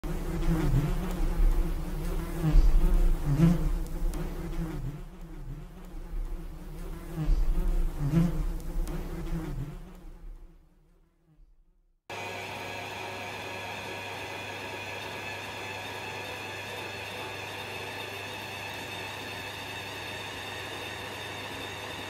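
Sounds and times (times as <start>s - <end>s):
honeybees buzzing: 0.0s - 10.6s.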